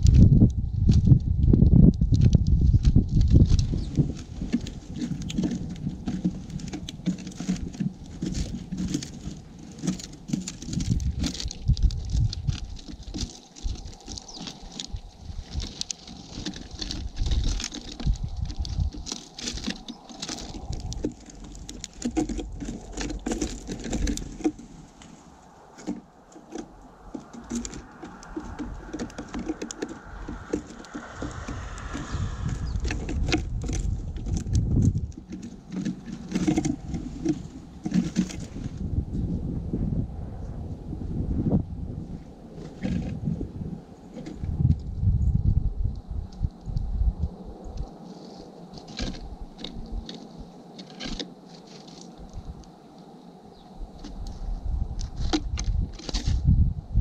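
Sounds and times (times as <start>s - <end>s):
sparrows pecking at seed: 0.0s - 38.6s.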